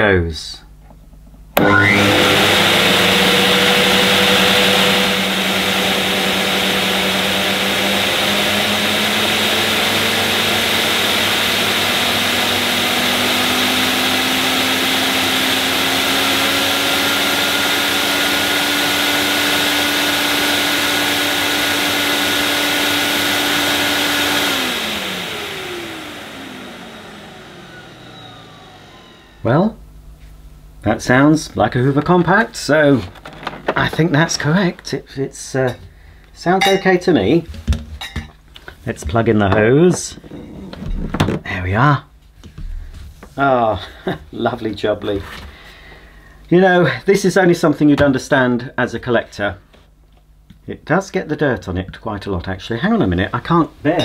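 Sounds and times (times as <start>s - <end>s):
vacuum cleaner motor humming: 1.6s - 29.8s, 38.9s - 41.4s.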